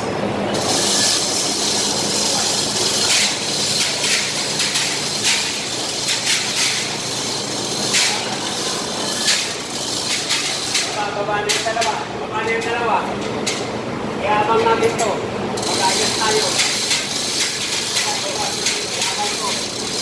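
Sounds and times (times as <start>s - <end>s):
steady loud hiss: 0.0s - 12.4s
metallic clanks of scaffolding: 16.5s - 20.0s.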